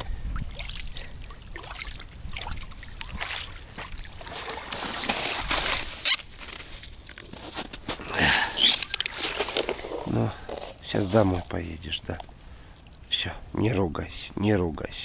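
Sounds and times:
light water splashing: 0.0 - 6.3, 8.7 - 13.2.

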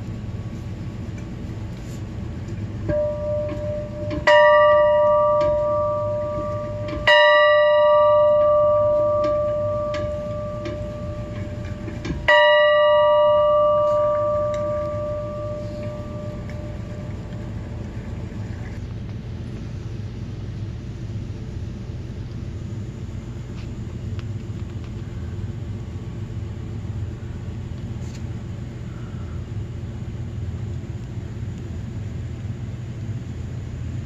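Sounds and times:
steady low rumble: 0.0 - 34.0
metal bell ringing: 2.9 - 18.4.

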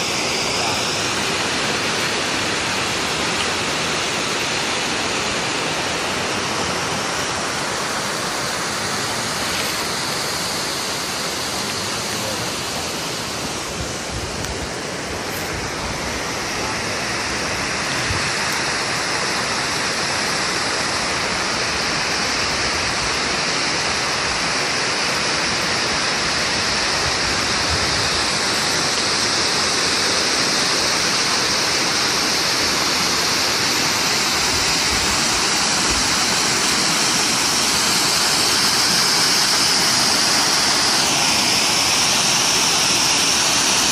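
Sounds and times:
water rushing down stepped cascade: 0.0 - 43.9.

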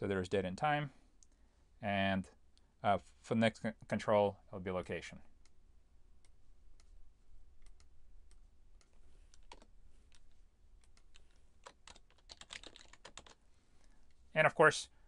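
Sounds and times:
keyboard and mouse clicks: 7.6 - 14.2.

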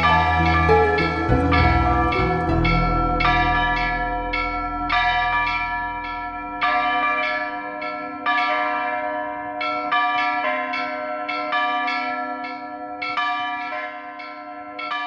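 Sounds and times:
low backing sound: 0.0 - 7.4
church bells ringing: 0.0 - 15.0.

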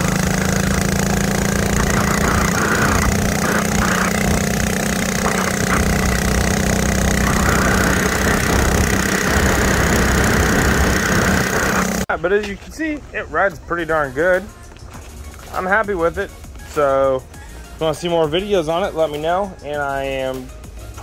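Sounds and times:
mini bike engine running: 0.0 - 12.1.

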